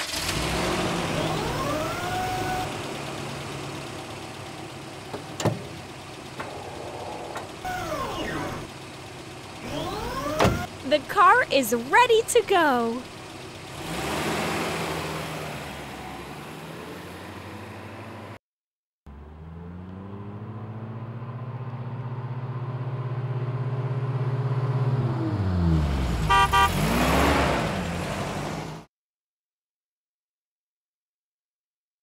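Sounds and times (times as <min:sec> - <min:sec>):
car engine running: 0:00.0 - 0:18.3, 0:19.1 - 0:27.2
car horn beeps: 0:26.2 - 0:26.9.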